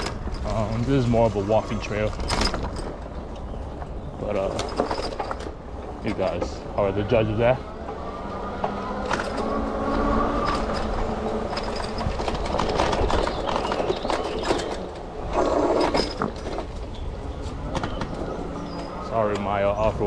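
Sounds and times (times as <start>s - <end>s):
bike rattling over bumps: 0.0s - 20.0s
bike tyre rumble on dirt: 9.7s - 20.0s.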